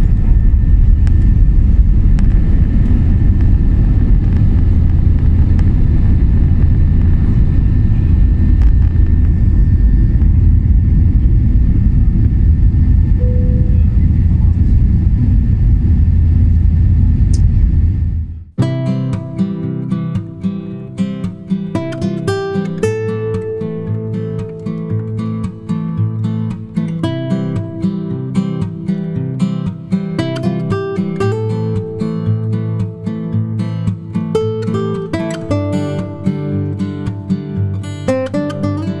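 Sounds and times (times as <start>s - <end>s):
jet engines at high thrust: 0.0s - 18.4s
faint steady whine: 0.0s - 18.5s
deep rumble from runway: 0.0s - 18.6s.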